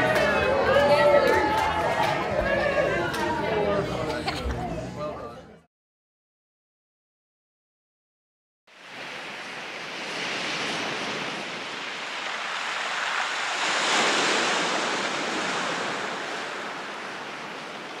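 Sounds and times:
rushing surf-like whoosh: 0:08.7 - 0:18.0.

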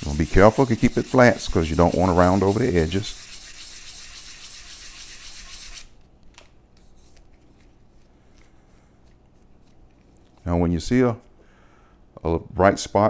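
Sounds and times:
sandpaper sanding wood: 0:00.0 - 0:06.0.

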